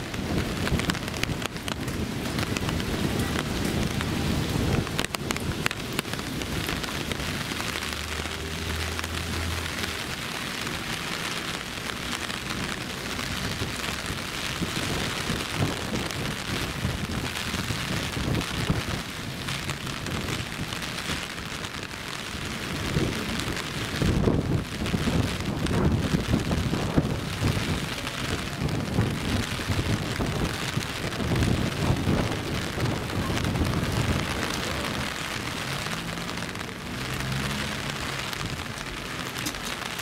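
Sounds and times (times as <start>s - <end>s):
heavy rain falling: 0.0s - 40.0s.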